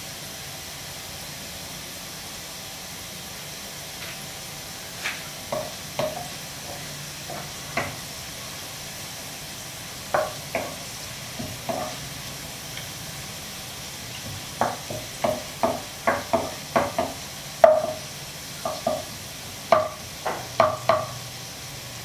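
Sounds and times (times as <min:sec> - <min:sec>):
shallots sizzling in oil: 0:00.0 - 0:22.0
wooden spatula knocking on pan: 0:05.5 - 0:08.0, 0:10.1 - 0:12.0, 0:14.2 - 0:21.2.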